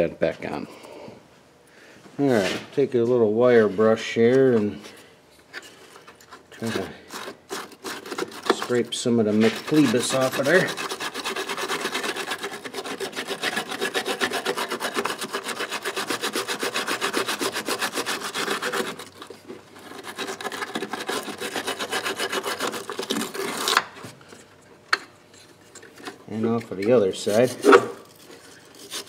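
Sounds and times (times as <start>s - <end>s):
wire brush scrubbing metal: 6.6s - 23.8s, 26.4s - 29.0s.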